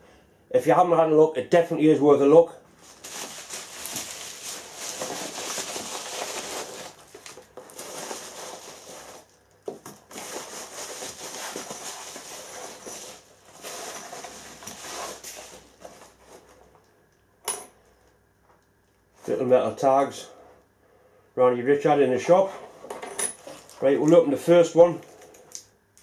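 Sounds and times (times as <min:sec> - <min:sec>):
padded envelope tearing and rustling: 0:02.8 - 0:09.4, 0:10.0 - 0:16.4.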